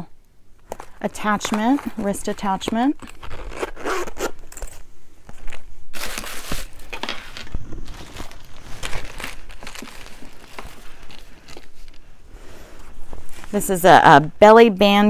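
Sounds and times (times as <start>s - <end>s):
plastic bag crinkling: 0.6s - 12.2s.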